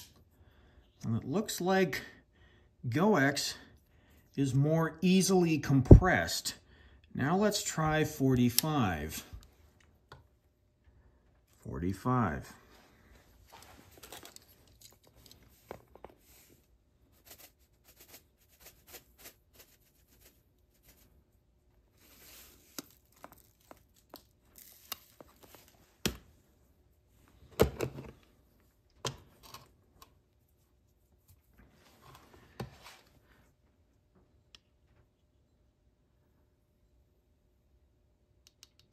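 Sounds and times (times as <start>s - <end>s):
powder pouring rustle: 17.1s - 21.2s, 21.9s - 25.7s.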